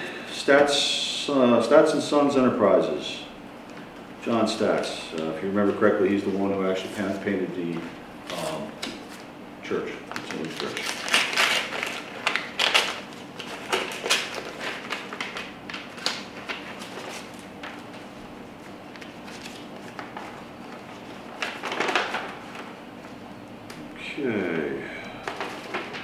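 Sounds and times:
paper rustling and crinkling: 4.6 - 9.3, 10.0 - 23.2, 25.2 - 26.0.

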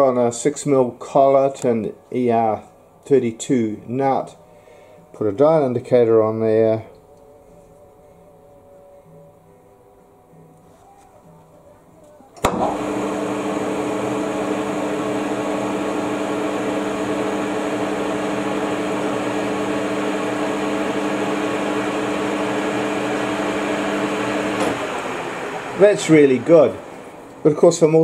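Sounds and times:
metal lathe running: 12.4 - 28.0.

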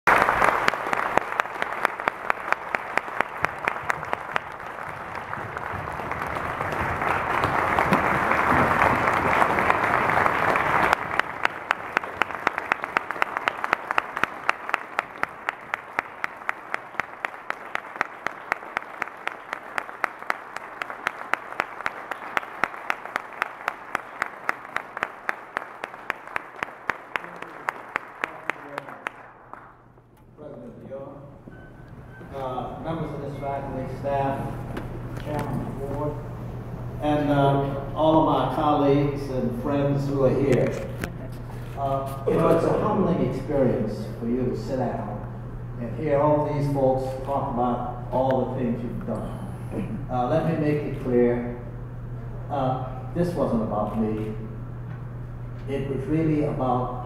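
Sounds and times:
audience applauding: 0.0 - 30.8
person clapping close by: 0.1 - 29.8.

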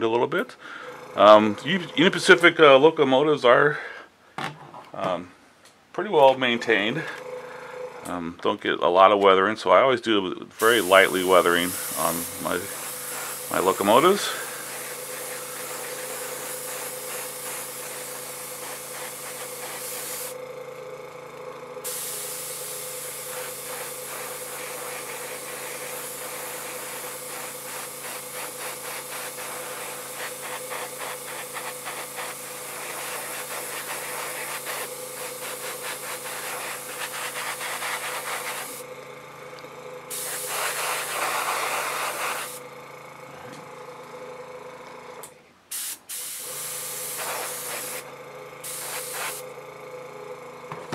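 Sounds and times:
steady low hum: 0.0 - 9.5, 10.2 - 45.4
airbrush spraying: 10.6 - 20.4, 21.8 - 38.9, 40.1 - 42.6, 45.7 - 49.5.

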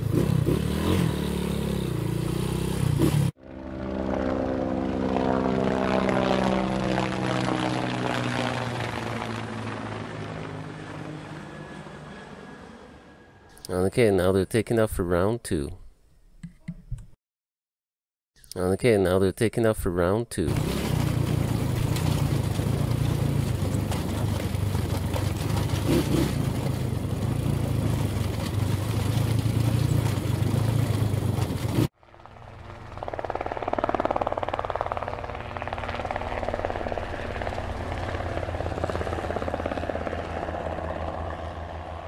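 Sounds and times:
dirt bike engines running: 0.0 - 12.3, 20.4 - 42.0
drone propellers humming: 2.9 - 13.6, 20.5 - 42.0.

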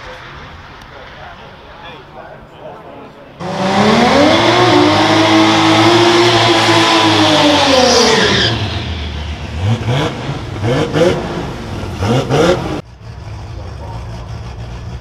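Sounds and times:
car engine revving high: 3.4 - 15.0
sharp throttle blips: 3.4 - 15.0
car engine idling: 7.2 - 15.0.

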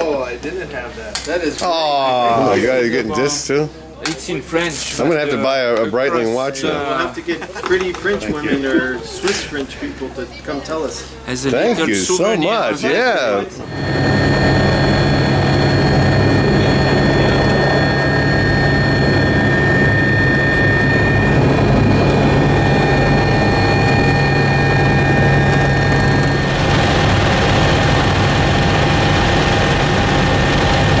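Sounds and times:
high turbine whine: 11.6 - 31.0
helicopter rotor drone: 12.0 - 31.0
helicopter flying overhead: 12.9 - 31.0.

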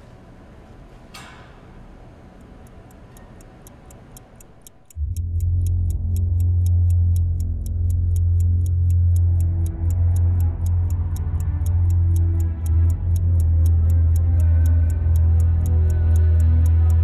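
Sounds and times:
clock ticking fast: 2.4 - 17.0
low bass drone of music: 4.8 - 17.0.

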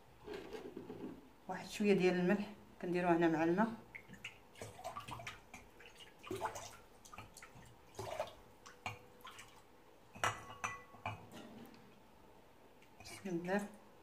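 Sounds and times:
clink against glass bowl: 10.2 - 11.2.

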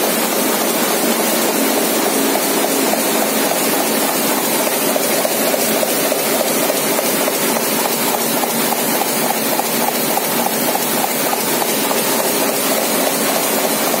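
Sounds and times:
printing press clattering: 0.0 - 14.0.

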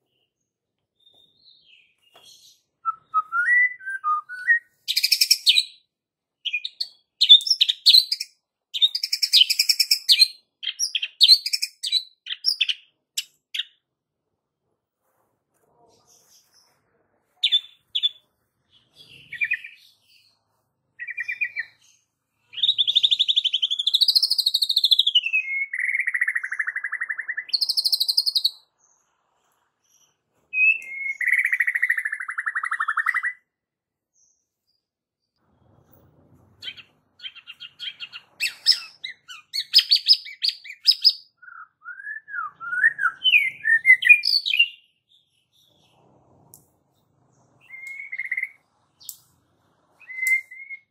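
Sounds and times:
bird singing whistled phrases: 2.8 - 5.8, 22.5 - 28.6, 30.5 - 33.4, 36.6 - 44.8, 47.6 - 48.6, 50.0 - 50.9.

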